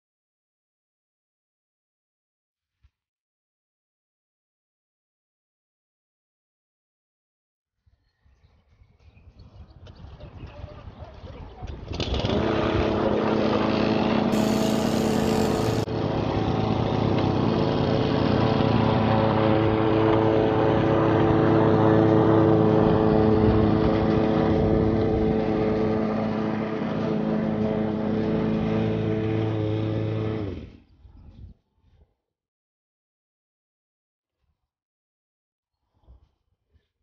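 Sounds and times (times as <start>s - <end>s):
lawn mower engine running: 12.0s - 30.6s.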